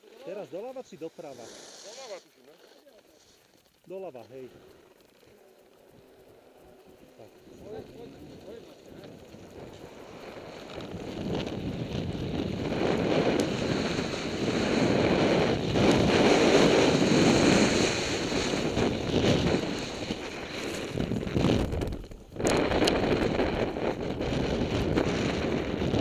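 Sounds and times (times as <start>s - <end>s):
wind rushing over microphone: 7.2s - 26.0s
skis running over snow: 7.6s - 26.0s.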